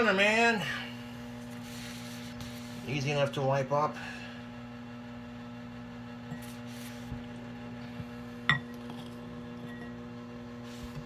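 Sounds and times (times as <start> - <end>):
electrical hum: 0.0 - 11.0
kitchenware clinking: 8.5 - 10.0.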